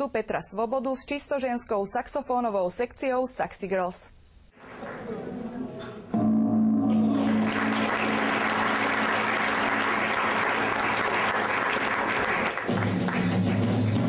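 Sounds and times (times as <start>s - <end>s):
gong ringing: 6.1s - 10.0s
steady low notes: 6.1s - 10.4s
audience applauding: 7.0s - 14.0s.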